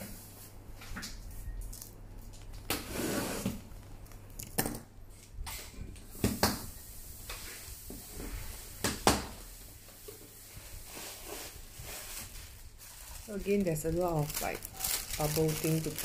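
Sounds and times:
plastic packaging rustling: 0:10.5 - 0:16.0
sharp crackles: 0:12.8 - 0:16.0.

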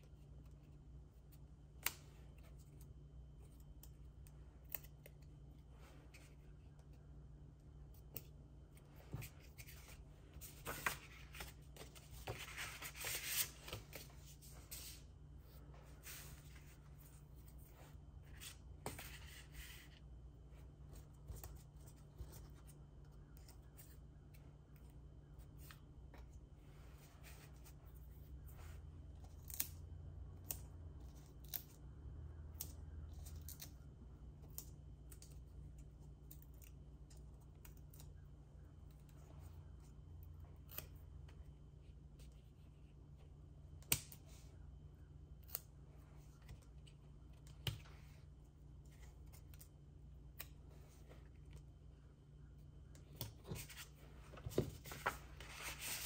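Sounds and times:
cardstock rustling: 0:09.0 - 0:17.7, 0:53.4 - 0:56.0.

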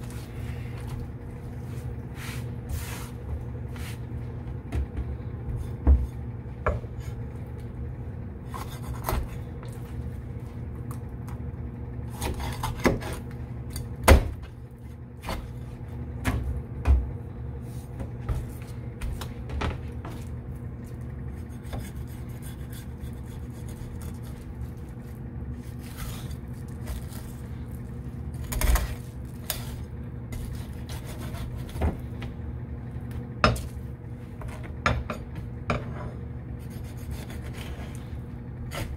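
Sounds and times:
steady low hum: 0:00.0 - 0:38.9
knife scraping fish: 0:08.5 - 0:09.4, 0:21.3 - 0:24.8, 0:28.4 - 0:31.8, 0:36.6 - 0:38.0.

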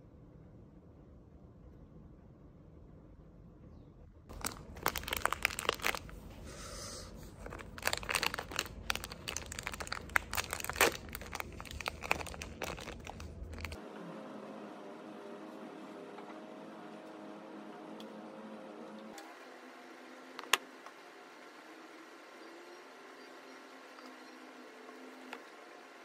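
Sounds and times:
wrapper crinkling: 0:04.3 - 0:06.4, 0:07.2 - 0:13.8.

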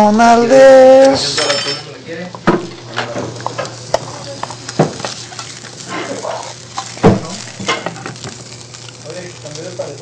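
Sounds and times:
food sizzling in frying pan: 0:00.0 - 0:10.0
dishes clinking: 0:01.2 - 0:03.1
utensil stirring and scraping: 0:03.3 - 0:09.0.

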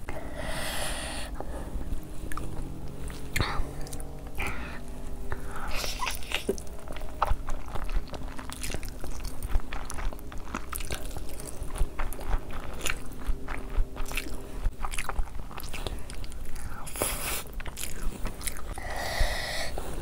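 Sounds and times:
chewing noodles with mouth clicks: 0:01.3 - 0:20.0
crunching: 0:05.4 - 0:19.0.

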